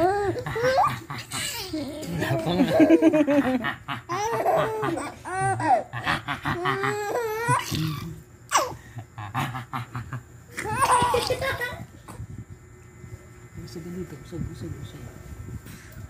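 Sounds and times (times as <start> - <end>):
baby laughing: 0.0 - 3.2, 4.0 - 7.9, 10.6 - 11.9.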